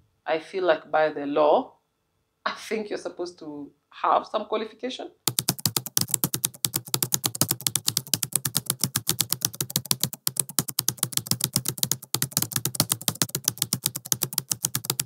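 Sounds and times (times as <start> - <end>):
rapid even clicking: 5.3 - 15.0.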